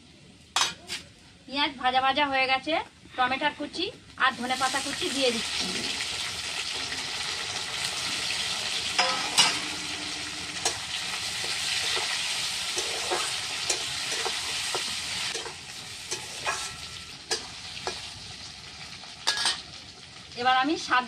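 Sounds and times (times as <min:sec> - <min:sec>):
metal spatula scraping a pan: 0:00.6 - 0:01.1, 0:07.9 - 0:18.1
vegetables sizzling in hot oil: 0:04.2 - 0:21.0.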